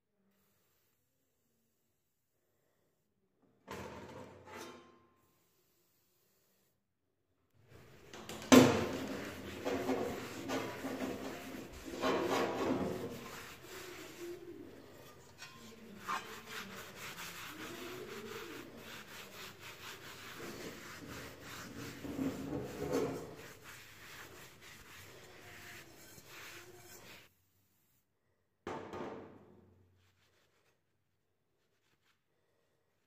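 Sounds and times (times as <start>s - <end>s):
cloth scrubbing metal: 7.7s - 27.3s.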